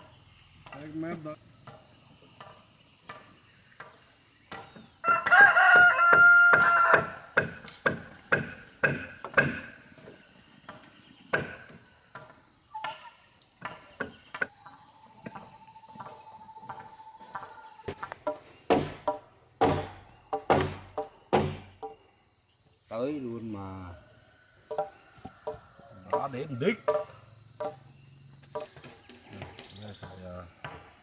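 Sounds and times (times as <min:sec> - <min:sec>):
sharp knocks on wood: 0:02.4 - 0:09.7, 0:10.7 - 0:12.3, 0:17.9 - 0:22.0, 0:24.7 - 0:27.8, 0:28.5 - 0:30.9
rooster crowing: 0:05.0 - 0:07.3.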